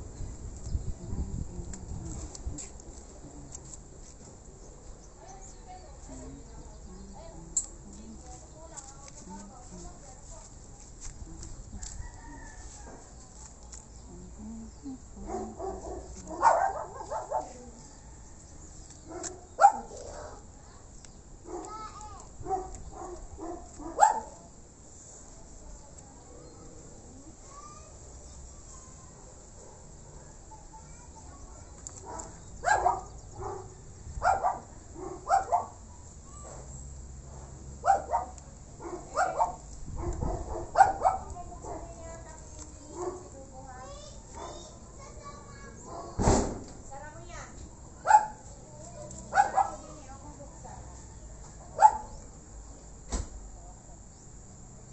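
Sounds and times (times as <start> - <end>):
dog barking: 15.2 - 17.6, 19.1 - 20.4, 21.5 - 21.8, 22.4 - 24.4, 32.0 - 35.8, 37.8 - 41.9, 43.0 - 43.3, 44.4 - 44.7, 45.9 - 46.2, 48.0 - 48.5, 49.3 - 49.9, 51.6 - 52.2.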